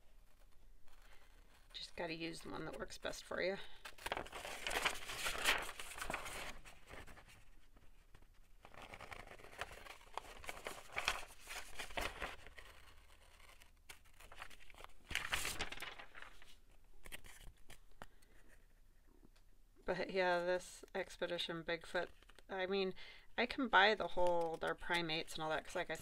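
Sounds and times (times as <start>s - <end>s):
paper rustling and crinkling: 3.7s - 18.1s.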